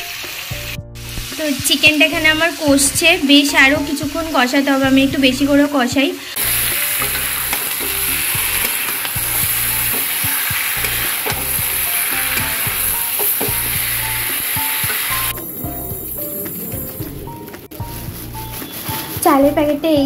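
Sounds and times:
chicken sizzling in oil: 0.0 - 16.8
faint background music: 0.2 - 20.0
spatula scraping a pan: 6.4 - 15.3.

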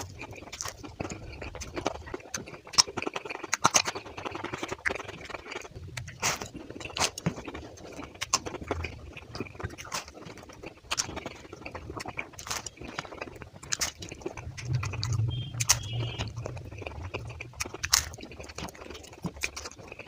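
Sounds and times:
chewing crunchy pastry: 0.0 - 20.0
wet mouth sounds: 0.0 - 20.0
low hum: 13.6 - 19.5.

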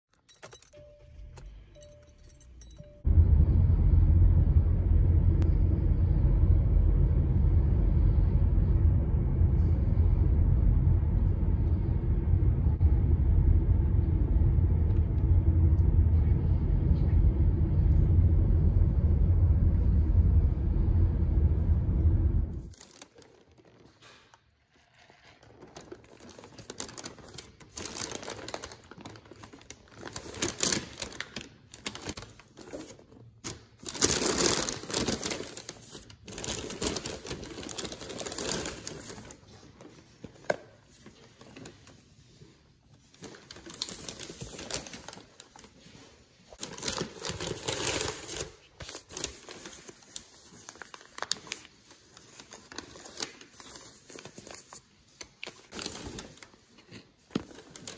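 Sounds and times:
paper bag rustling and crinkling: 22.6 - 57.9.

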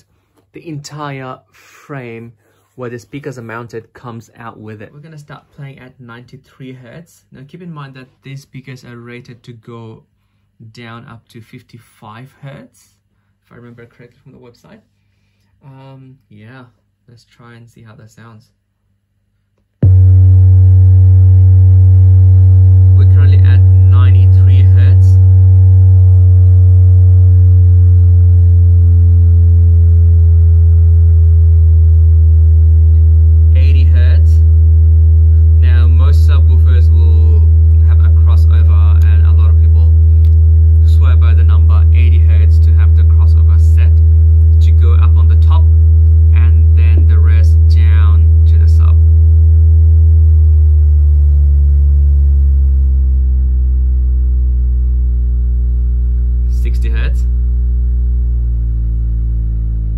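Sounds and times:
low bass test tone: 19.8 - 59.9.

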